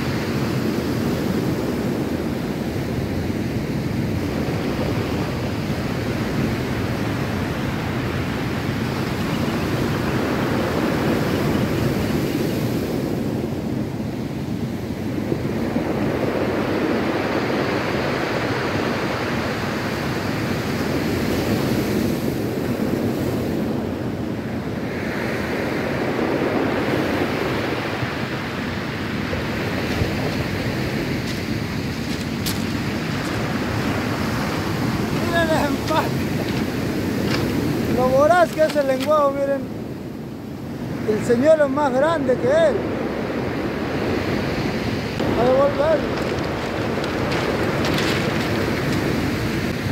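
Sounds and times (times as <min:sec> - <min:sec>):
surf washing up pebble beach: 0:00.0 - 0:49.9.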